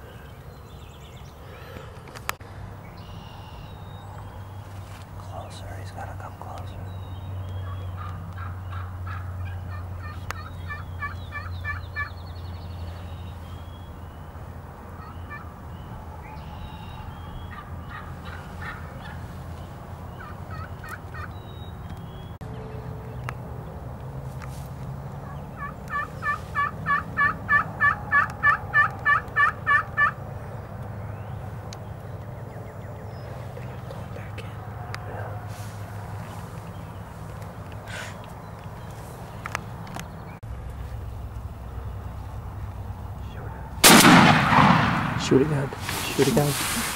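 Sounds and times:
turkey yelping: 7.6 - 12.2, 15.0 - 15.5, 16.2 - 19.3, 20.1 - 21.3, 25.2 - 30.2.

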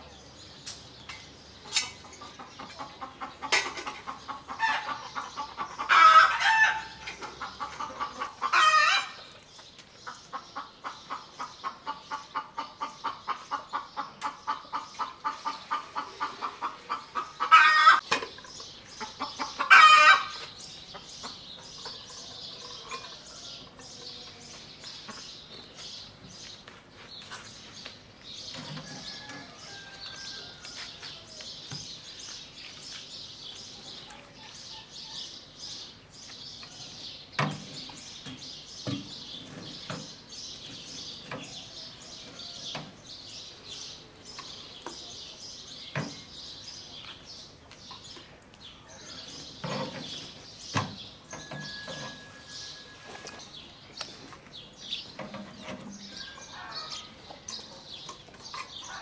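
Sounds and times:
hen clucking rapidly: 2.0 - 9.2, 10.0 - 22.9
chicken squawking calls: 15.3 - 18.0.

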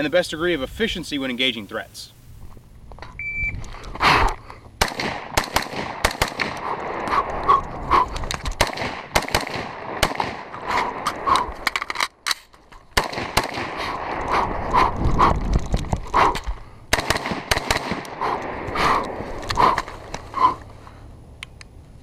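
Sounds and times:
brief high beep: 3.2 - 3.6
rifle shots: 4.8 - 7.1, 8.5 - 11.4, 12.9 - 14.6, 16.9 - 19.2.

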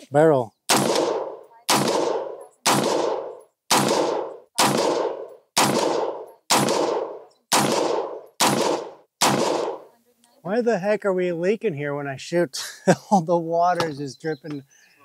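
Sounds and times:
gunshots with ringing decay: 0.7 - 9.9.

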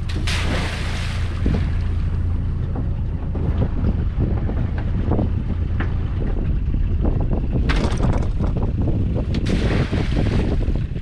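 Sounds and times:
wind buffeting microphone: 0.0 - 11.0
sharp knocks: 7.6 - 8.6.

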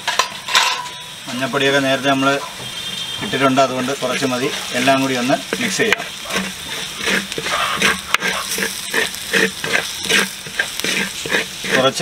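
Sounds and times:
steady sizzle: 0.0 - 12.0
spatula scraping a pan: 2.0 - 12.0.

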